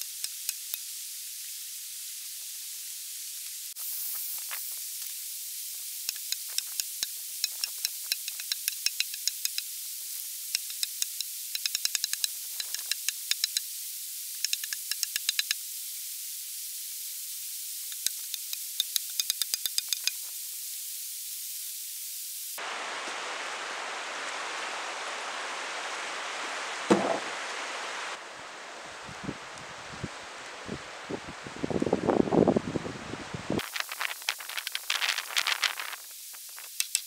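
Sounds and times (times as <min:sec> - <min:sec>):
rustling leaves: 0:00.0 - 0:37.0
steady hiss: 0:00.0 - 0:37.0
wind: 0:00.0 - 0:37.0
axe chopping log: 0:26.9 - 0:27.3
loud thump: 0:26.9 - 0:27.3.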